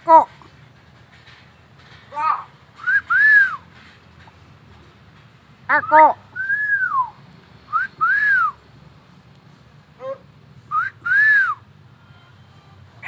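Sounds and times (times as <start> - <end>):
bird whistling: 2.8 - 3.7, 5.8 - 8.6, 10.7 - 11.7.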